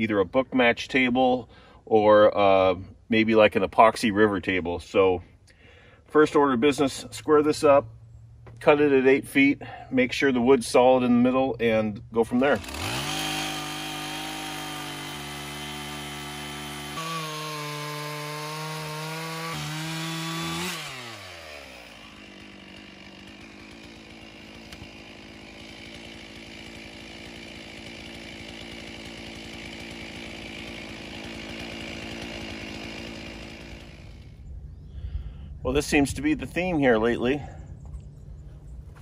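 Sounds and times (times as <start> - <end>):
chainsaw cutting log: 8.4 - 34.5.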